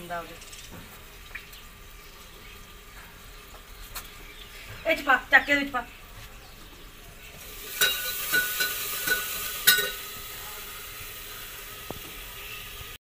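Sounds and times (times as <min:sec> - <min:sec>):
food sizzling in a pot: 0:00.0 - 0:13.0
steel utensils clinking and scraping: 0:07.5 - 0:10.2.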